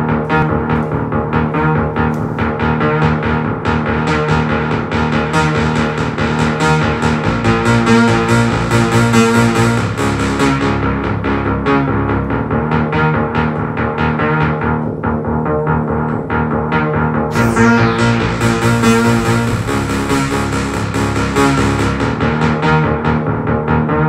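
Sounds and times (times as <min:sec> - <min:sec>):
synthesizer arpeggiated bass line: 0:00.0 - 0:24.0.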